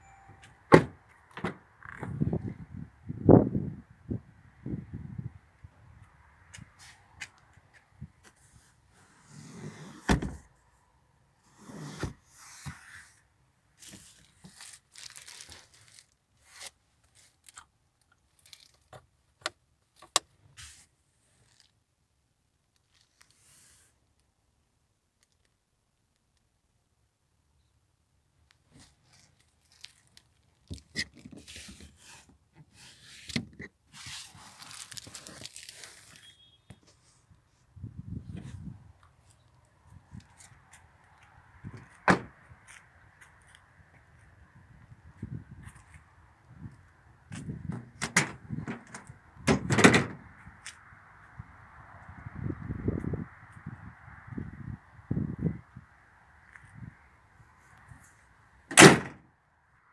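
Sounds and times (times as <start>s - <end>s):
rustling: 28.6s - 37.7s.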